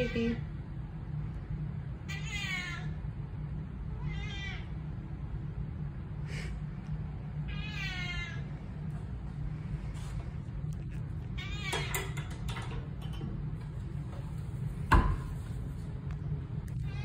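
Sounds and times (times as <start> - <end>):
cat meowing: 2.1 - 3.0, 4.0 - 4.8, 7.5 - 8.5, 11.4 - 12.1, 16.8 - 17.0.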